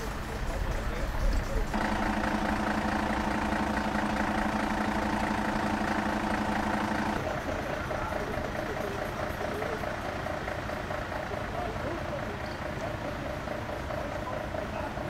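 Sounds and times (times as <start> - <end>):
engine running: 0.0 - 15.0
truck engine idling: 0.0 - 15.0
regular pulsing tone: 1.7 - 7.3.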